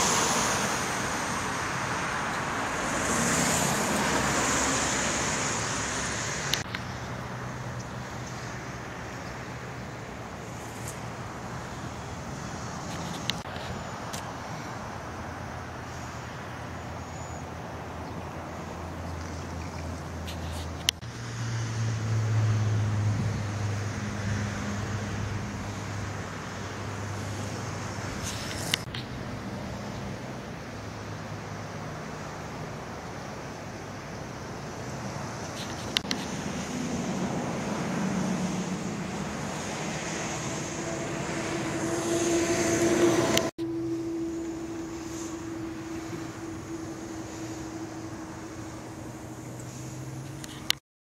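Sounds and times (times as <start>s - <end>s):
steady humming tone: 35.8s - 50.7s.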